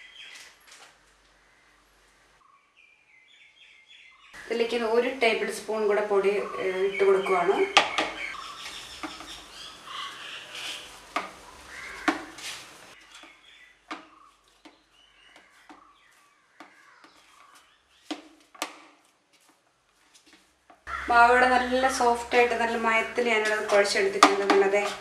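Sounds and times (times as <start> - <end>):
hands kneading soft dough: 10.4 - 20.9.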